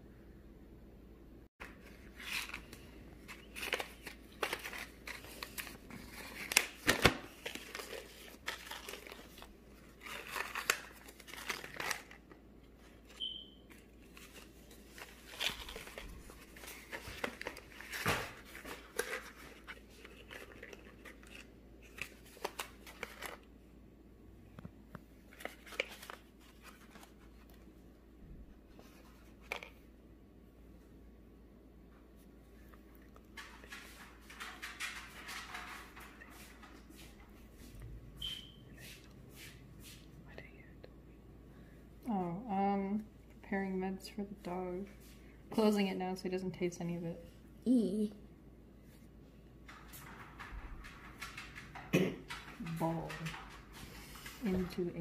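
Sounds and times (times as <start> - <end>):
paper packaging rustling: 1.6 - 23.5, 25.2 - 27.7, 33.1 - 37.8.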